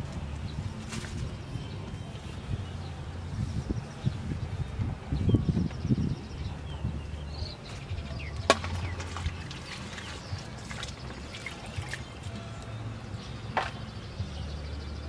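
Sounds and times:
water splashing and dripping: 7.7s - 12.7s.

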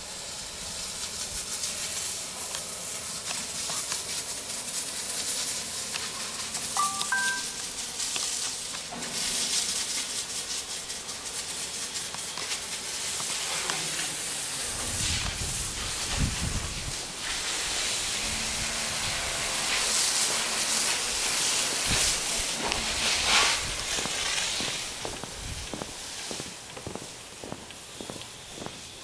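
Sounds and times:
sprayer hissing: 0.0s - 29.0s
wind buffeting microphone: 14.7s - 17.3s, 24.9s - 26.0s.

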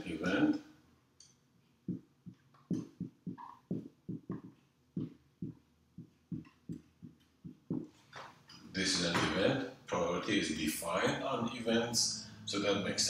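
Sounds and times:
marker writing on whiteboard: 1.9s - 8.3s.

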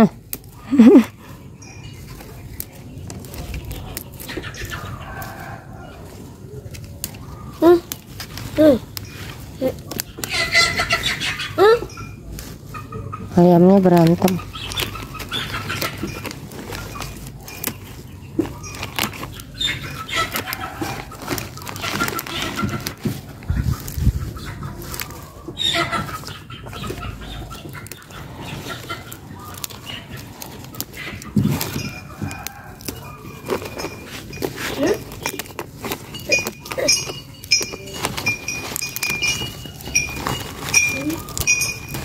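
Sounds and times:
stems snapping: 0.0s - 0.6s, 2.1s - 5.5s, 6.1s - 10.7s, 13.7s - 17.8s, 18.4s - 24.1s, 26.0s - 42.0s
farm animal calls: 0.0s - 42.0s
leaves rustling: 0.0s - 42.0s.

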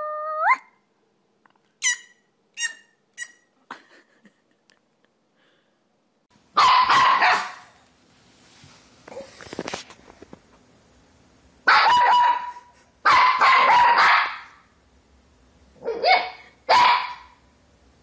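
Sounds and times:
puppy yipping: 1.8s - 3.4s.

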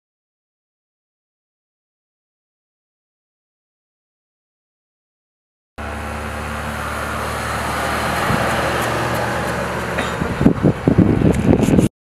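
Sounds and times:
pickup truck driving past: 5.8s - 11.2s.

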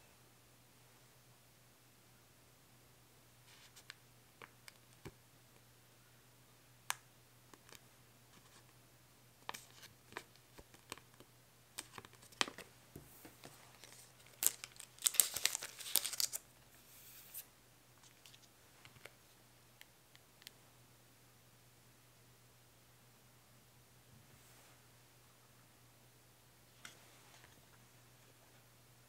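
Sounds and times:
loud packaging crinkling: 13.7s - 16.4s.

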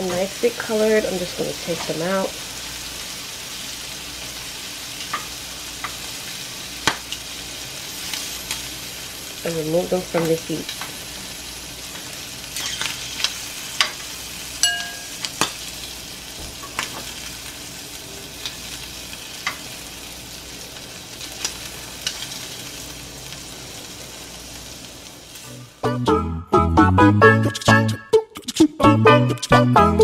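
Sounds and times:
shrimp sizzling in a frying pan: 0.0s - 25.8s
music: 25.4s - 30.0s.

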